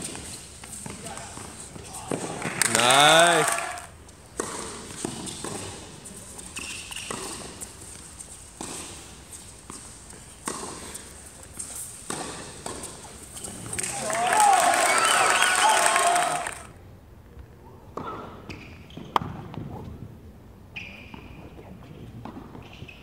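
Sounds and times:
spectators' voices: 2.6s - 3.9s
tennis ball bounces: 4.4s - 5.8s, 6.6s - 13.7s, 17.9s - 19.6s
shoe squeak: 6.4s - 7.5s, 18.1s - 19.2s, 20.7s - 21.5s, 22.6s - 23.0s.

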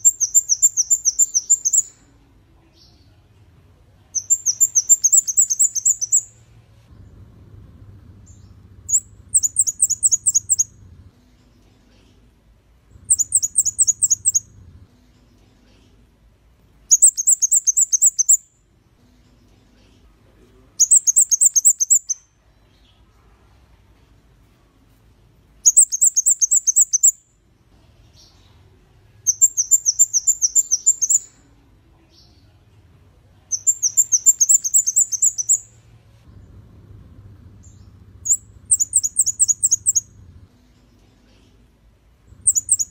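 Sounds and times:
bird singing high ticking notes: 0.0s - 2.0s, 4.2s - 6.4s, 8.3s - 10.9s, 13.0s - 14.6s, 16.9s - 18.5s, 20.8s - 22.3s, 25.6s - 27.3s, 29.3s - 31.3s, 33.5s - 35.7s, 37.6s - 40.2s, 42.3s - 42.9s.

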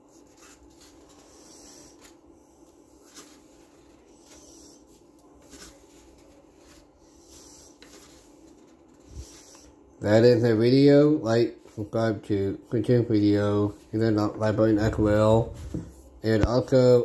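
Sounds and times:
paper pages rustling: 0.0s - 9.7s
faint steady hum: 0.0s - 17.0s.

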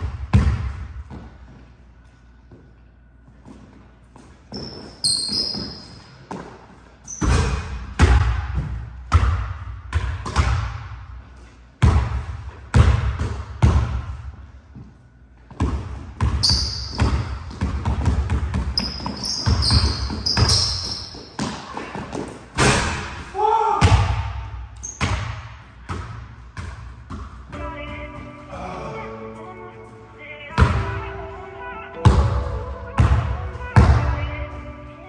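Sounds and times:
sneakers squeaking: 0.0s - 28.6s
basketball bouncing on hardwood: 11.8s - 14.1s, 15.5s - 22.4s.

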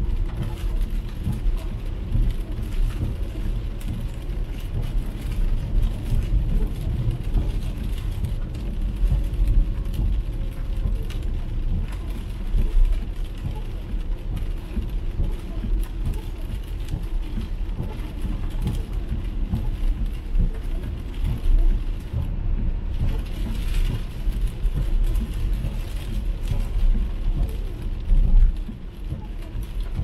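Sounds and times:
rain pattering on car: 0.0s - 30.0s
tyres rumbling on wet road: 0.0s - 30.0s.

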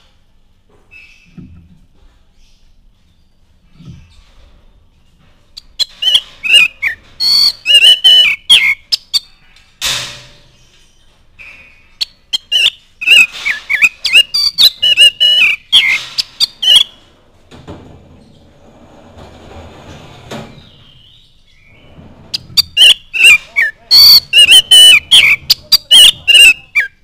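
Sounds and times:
bird singing whistles and clicks: 5.8s - 9.2s, 12.0s - 16.9s, 22.6s - 27.0s.

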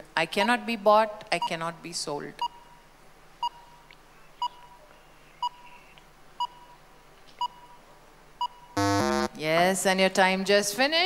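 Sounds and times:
countdown timer beeping: 8.4s - 9.3s.

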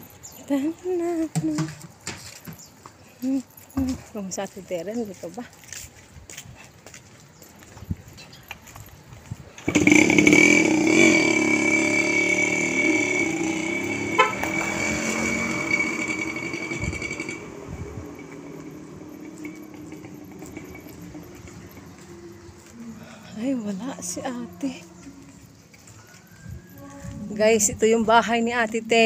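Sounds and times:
small engine running: 9.6s - 23.0s.

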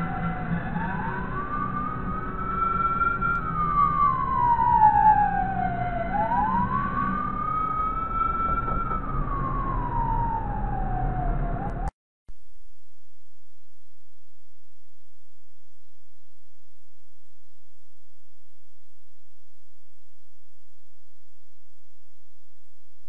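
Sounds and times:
ambulance siren wailing: 0.0s - 11.9s
traffic noise: 0.0s - 11.9s.

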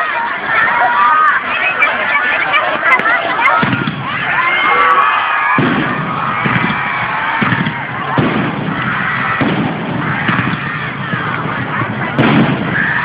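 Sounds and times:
crowd voices: 0.0s - 13.0s
fireworks banging: 2.9s - 4.4s, 5.5s - 13.0s.

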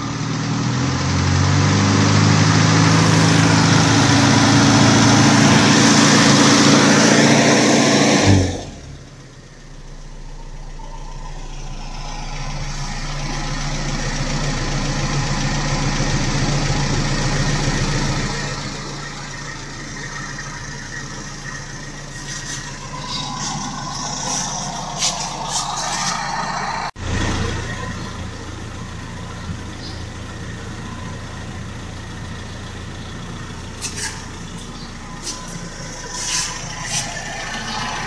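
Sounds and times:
car engine idling: 0.0s - 38.0s.

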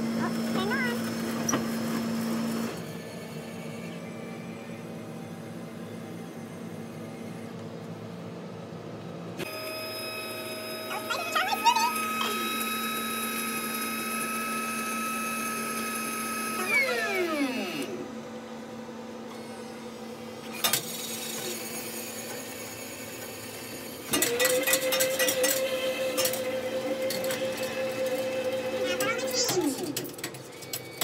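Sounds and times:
blender motor running: 9.5s - 18.1s.

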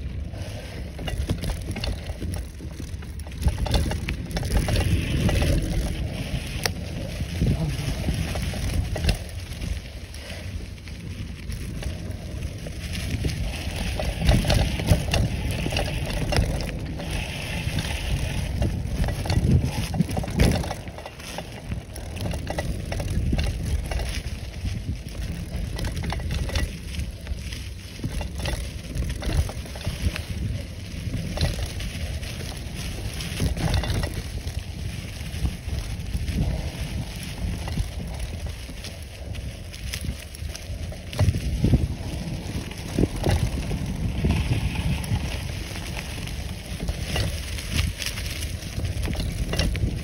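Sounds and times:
bicycle tyres crunching leaves: 0.0s - 50.0s
wind noise on microphone: 0.0s - 50.0s.

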